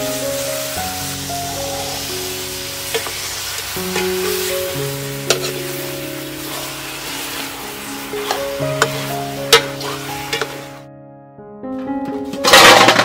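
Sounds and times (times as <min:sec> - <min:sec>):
chicken sizzling in a pot: 0:00.0 - 0:10.9
background music with held notes: 0:00.0 - 0:13.0.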